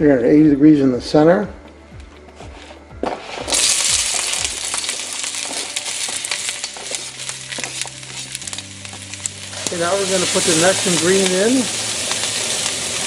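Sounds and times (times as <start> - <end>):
vegetables sizzling in a wok: 3.2 - 13.0.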